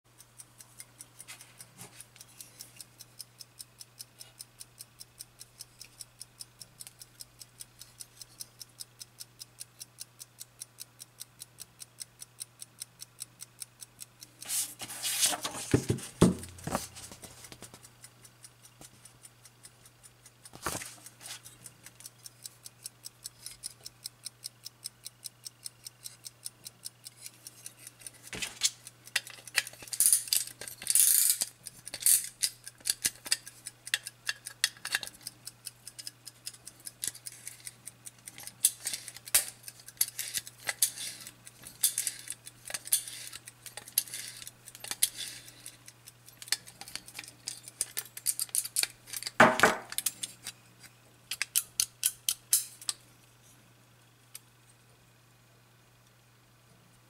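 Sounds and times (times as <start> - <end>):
clock movement ticking fast: 0.1 - 49.4
metal clinks and rubs from tool: 38.3 - 45.8.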